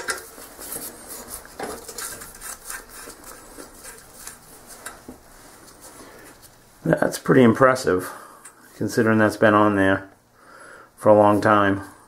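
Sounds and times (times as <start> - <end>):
metal clicks and scraping: 0.0 - 5.0.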